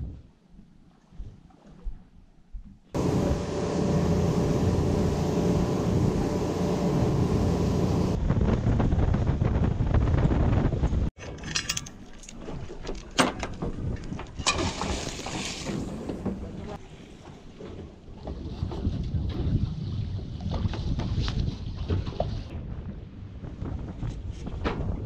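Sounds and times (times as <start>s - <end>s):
outboard motor running: 3.0s - 8.2s
water noise: 3.0s - 9.6s, 11.3s - 22.5s
wind noise: 4.2s - 16.7s, 18.2s - 25.0s
anchor chain clinking: 11.2s - 13.6s.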